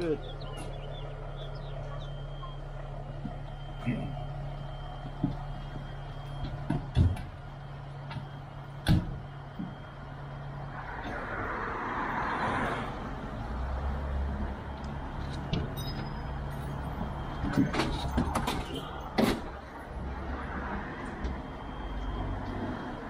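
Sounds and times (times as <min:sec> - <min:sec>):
fire truck engine idling: 0:00.0 - 0:11.2, 0:12.9 - 0:23.0
sharp knocks and clanks: 0:05.0 - 0:09.8, 0:15.3 - 0:19.6.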